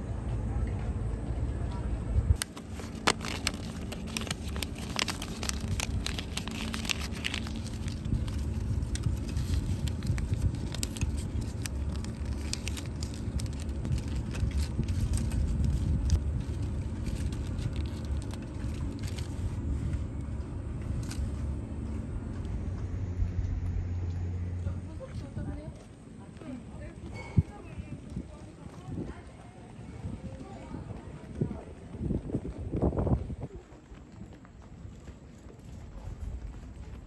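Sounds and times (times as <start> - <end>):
steady low rumble: 0.0 - 37.0
paper crinkling and rustling: 2.4 - 21.6.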